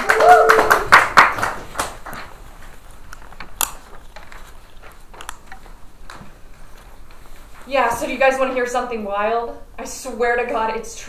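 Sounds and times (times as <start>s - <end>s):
people clapping: 0.0s - 2.4s
light footsteps: 1.6s - 8.8s.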